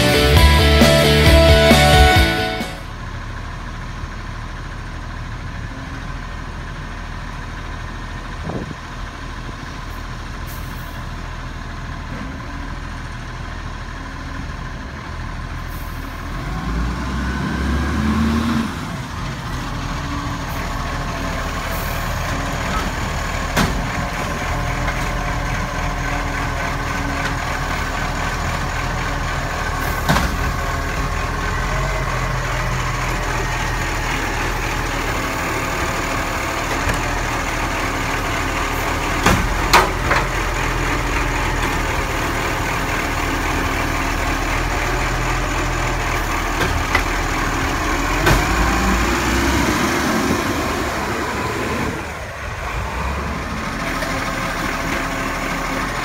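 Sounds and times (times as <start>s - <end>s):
rising pitch sound: 0.0s - 2.9s
diesel engine running: 0.0s - 56.0s
hydraulic arm lifting bins: 16.5s - 56.0s
bins banging against hopper: 22.6s - 25.2s, 29.8s - 31.0s, 38.7s - 41.8s, 48.0s - 49.1s.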